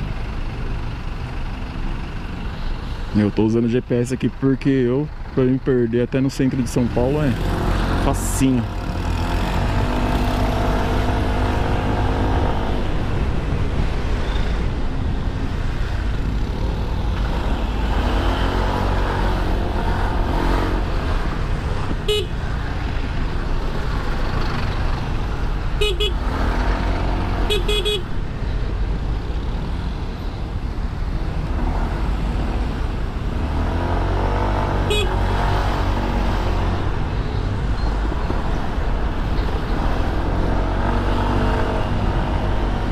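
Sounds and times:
wind and road noise rumble: 0.0s - 42.9s
horn toots: 22.0s - 22.4s, 25.8s - 26.4s, 27.4s - 28.1s, 34.8s - 35.4s.

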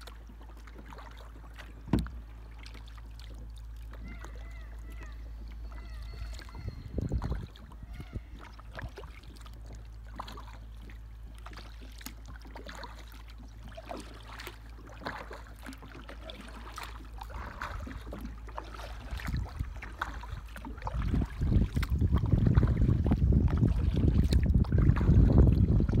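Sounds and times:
small drips and knocks: 0.0s - 6.5s, 8.5s - 26.0s
water lapping against boat hull: 0.0s - 26.0s
wind rumble on microphone: 4.1s - 9.3s, 17.2s - 26.0s.

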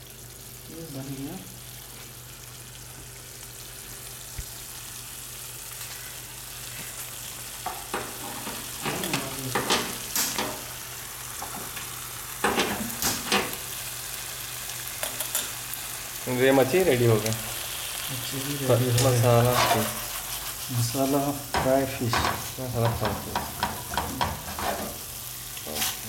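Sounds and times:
fish sizzling in a frying pan: 0.0s - 26.0s
steel cookware clinking: 7.7s - 10.7s, 11.4s - 13.6s, 15.0s - 15.6s.

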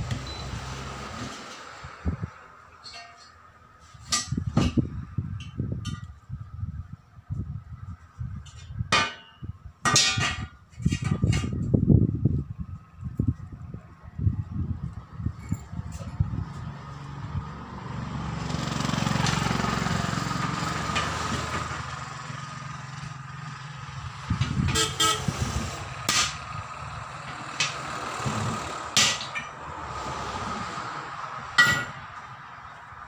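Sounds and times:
motor vehicle passing: 0.0s - 2.7s, 13.2s - 33.0s
knocks of tools on steel rims: 2.8s - 3.4s, 4.0s - 6.2s, 8.4s - 11.7s, 26.0s - 26.5s, 27.2s - 29.6s, 31.6s - 32.2s.

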